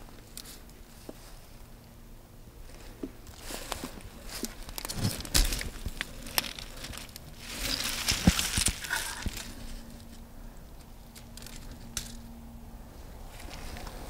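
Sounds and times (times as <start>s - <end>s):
dry stalks rustling and crackling: 0.0s - 14.0s
footsteps through dry plants: 2.7s - 10.3s, 12.9s - 14.0s.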